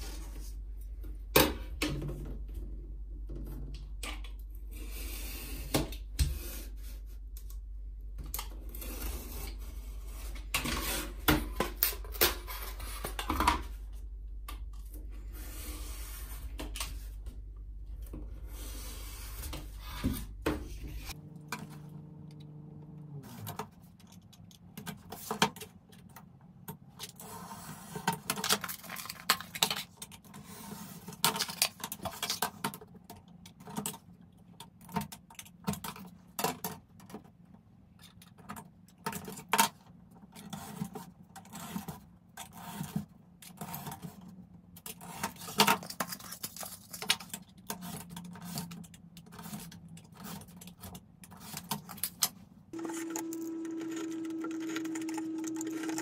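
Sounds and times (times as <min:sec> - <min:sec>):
steady low hum: 0:12.6 - 0:24.1.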